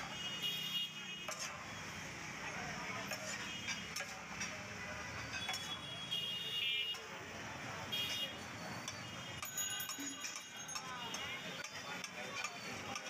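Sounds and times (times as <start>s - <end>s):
metal spatulas scraping griddle: 1.2s - 1.7s, 3.0s - 5.8s.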